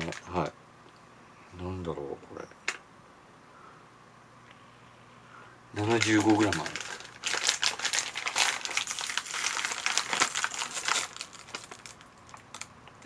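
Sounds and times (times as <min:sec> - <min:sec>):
plastic snack bag crinkling: 0:00.0 - 0:00.4, 0:05.8 - 0:13.0.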